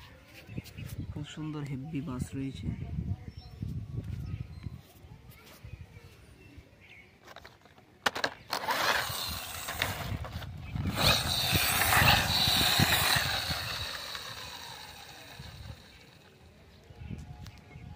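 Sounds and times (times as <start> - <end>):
toy bus gear grinding whir: 8.0 - 16.8
toy click: 10.9 - 16.2.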